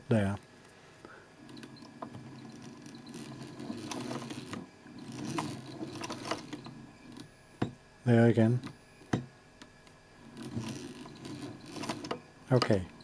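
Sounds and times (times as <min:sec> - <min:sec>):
sewing machine motor humming: 0:01.4 - 0:07.7, 0:10.2 - 0:12.8.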